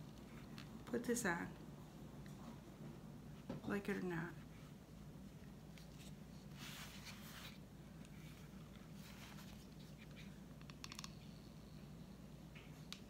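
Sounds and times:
felt rustling on gourd: 5.8s - 10.3s.

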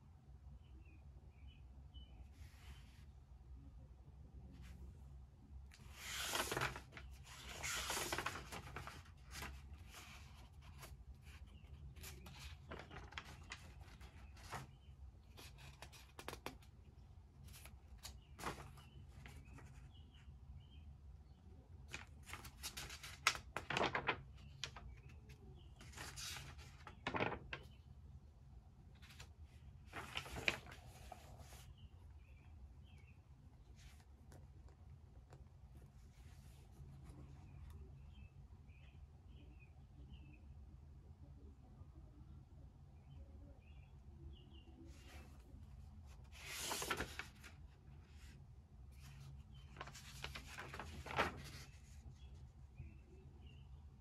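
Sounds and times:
paper rustling: 5.7s - 20.0s, 21.9s - 27.9s, 29.0s - 31.8s, 44.9s - 52.8s.

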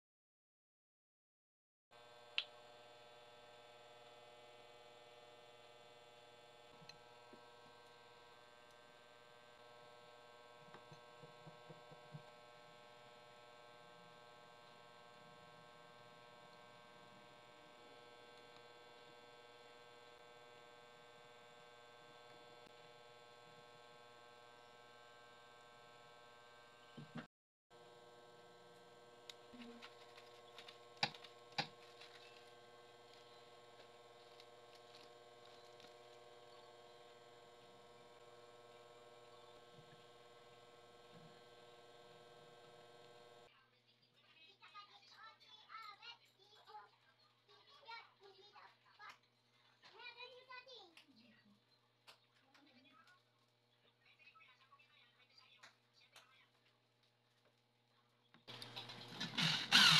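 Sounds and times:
electrical hum: 2.0s - 43.5s, 58.5s - 59.9s
small parts clicking and tapping: 29.3s - 32.5s, 33.1s - 36.2s.

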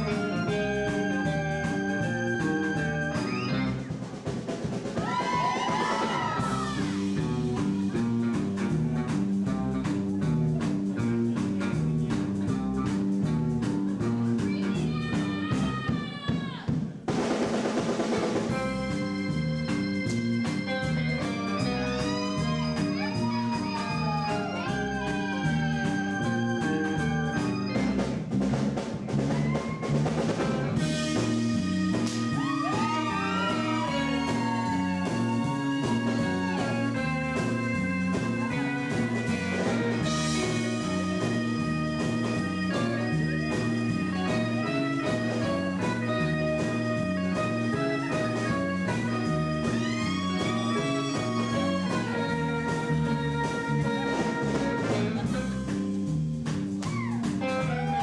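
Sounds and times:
repeating bass line: 0.0s - 3.9s, 18.5s - 57.8s
electric guitar lead with bending notes: 0.0s - 15.9s, 18.1s - 58.0s
drums: 0.0s - 58.0s.

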